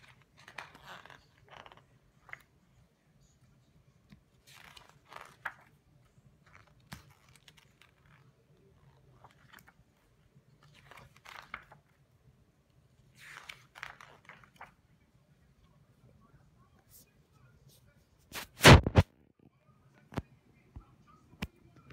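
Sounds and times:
book pages turning: 0.0 - 2.6, 4.1 - 12.0, 13.0 - 14.9, 18.3 - 19.1.

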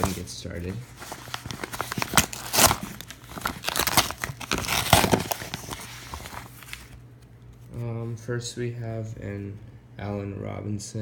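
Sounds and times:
paper envelope crinkling: 0.0 - 7.0.

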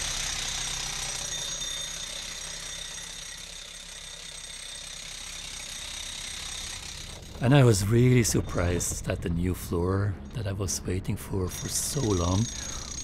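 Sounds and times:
machine running with high whine: 5.5 - 13.0
low hum: 6.5 - 13.0.

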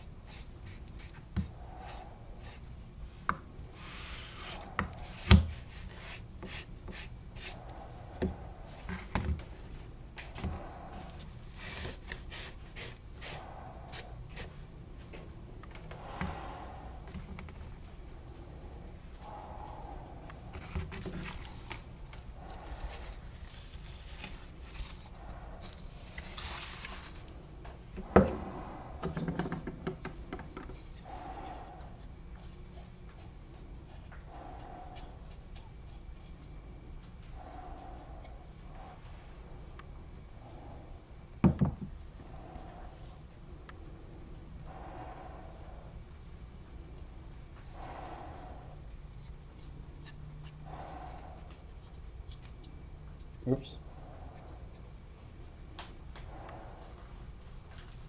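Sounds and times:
hand rubbing wood: 0.0 - 17.7, 18.4 - 39.7.

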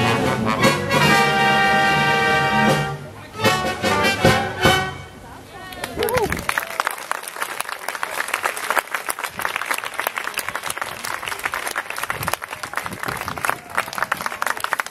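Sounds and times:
audience applauding: 5.7 - 14.9.

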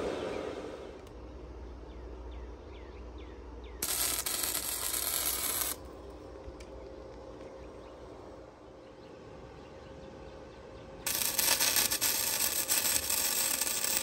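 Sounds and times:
welding arc crackling and hissing: 3.8 - 6.0, 11.1 - 14.0.

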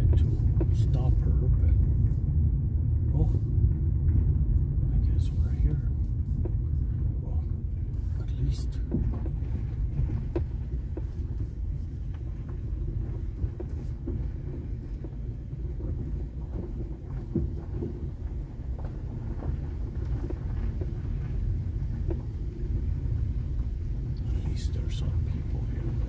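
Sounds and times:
car rumbling over gravel: 0.0 - 26.0
gravel ticks: 0.0 - 26.0.

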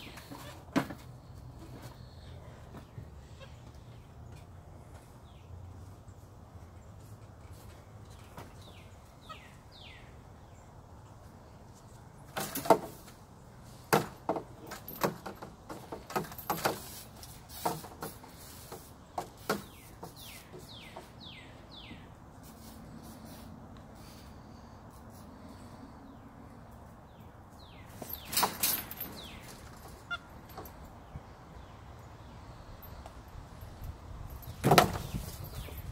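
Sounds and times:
bird chirping: 8.1 - 10.8, 19.1 - 22.2, 25.4 - 33.2.

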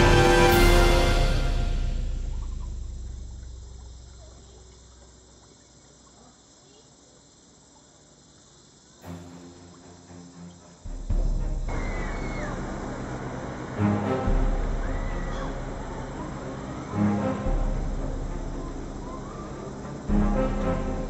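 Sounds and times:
background music: 0.0 - 3.2, 9.0 - 21.0
crickets chirring: 0.0 - 21.0.

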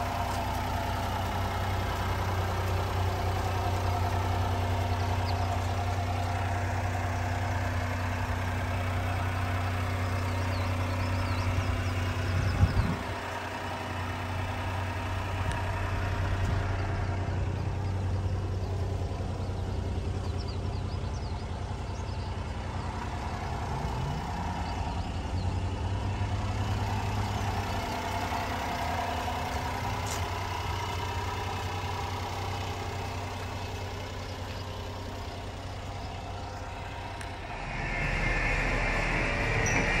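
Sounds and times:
small truck engine idling: 0.0 - 40.0.

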